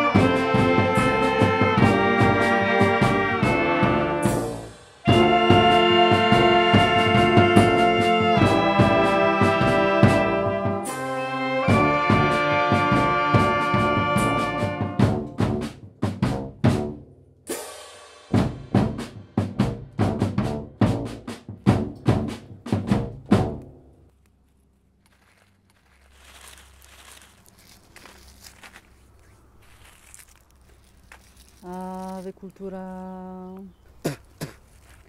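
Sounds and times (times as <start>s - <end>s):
brass band chord: 0.0s - 17.0s
snare and bass drum marching beat: 0.0s - 17.6s, 18.3s - 23.7s.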